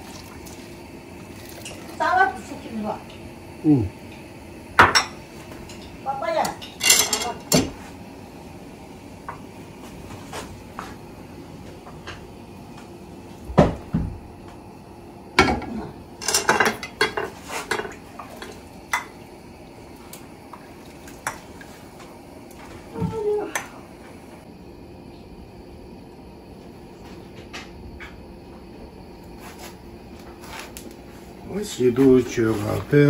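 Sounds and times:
utensils knocking against pots: 0:04.8 - 0:07.7, 0:15.4 - 0:19.2.

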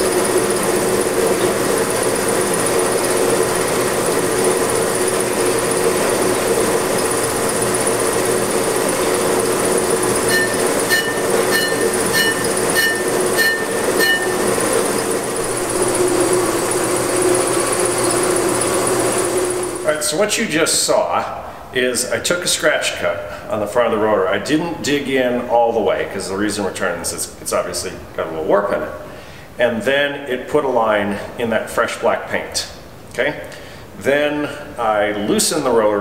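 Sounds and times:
cutting bit scraping rotor: 0:00.0 - 0:19.9
brake lathe humming: 0:00.0 - 0:20.1.

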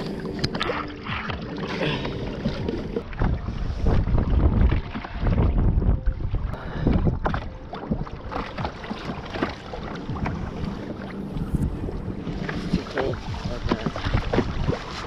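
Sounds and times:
water slapping hull: 0:00.0 - 0:15.0
wind buffeting microphone: 0:02.9 - 0:08.8.

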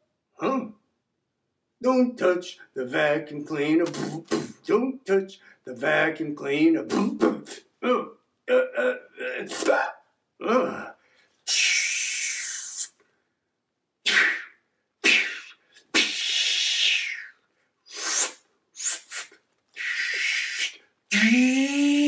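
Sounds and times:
breathy hissing by mouth: 0:14.1 - 0:21.4
sniffing: 0:17.9 - 0:20.8.

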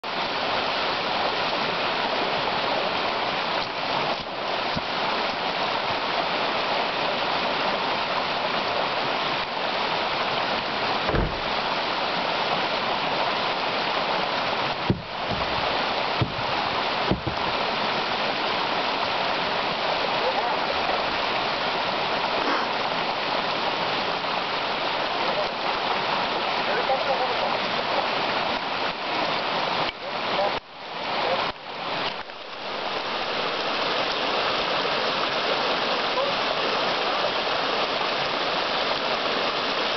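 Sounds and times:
river rushing over rocks: 0:00.0 - 0:39.9
low thumps: 0:11.1 - 0:11.6, 0:14.8 - 0:17.6.

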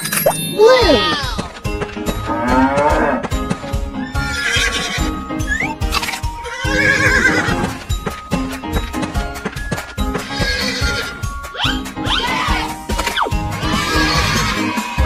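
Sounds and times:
horse whinnying: 0:04.0 - 0:07.7, 0:10.2 - 0:12.8, 0:13.6 - 0:15.0
hooves clip-clopping: 0:06.0 - 0:11.2.

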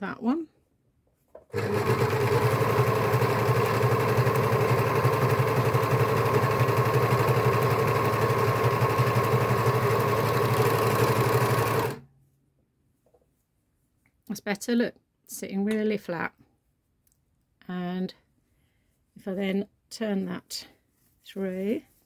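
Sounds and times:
overlocker stitching: 0:01.4 - 0:12.1.

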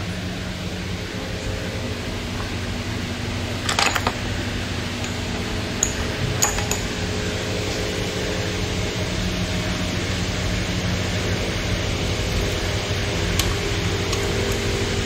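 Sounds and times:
steady low hum: 0:00.0 - 0:15.0
metal hand tools clinking: 0:05.0 - 0:06.9.

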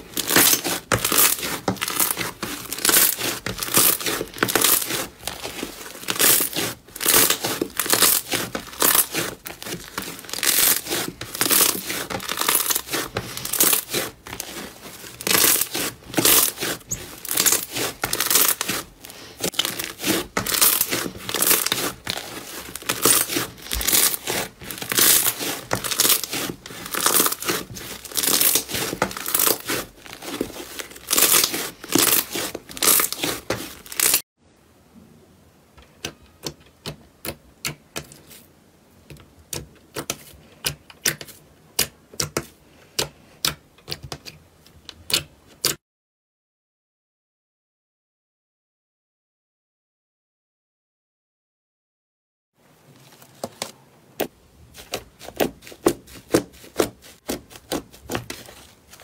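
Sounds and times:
slime crackling and tearing: 0:00.0 - 0:34.2, 0:54.7 - 0:59.0.

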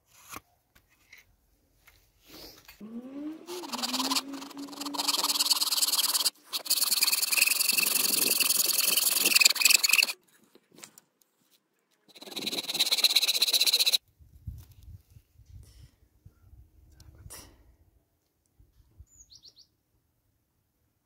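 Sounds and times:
saw cutting wood: 0:02.8 - 0:10.2, 0:12.1 - 0:14.0.

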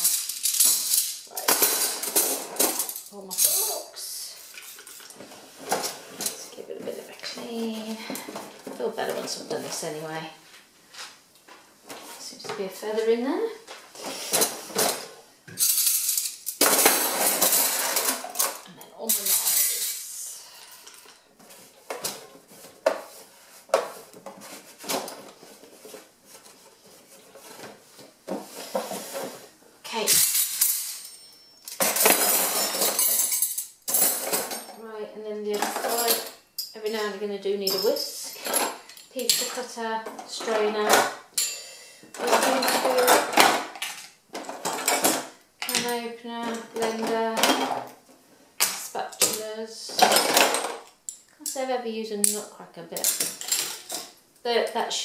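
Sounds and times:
cutlery clinking in plastic tray: 0:00.0 - 0:03.7, 0:14.3 - 0:20.0, 0:30.0 - 0:34.8, 0:42.2 - 0:47.9.

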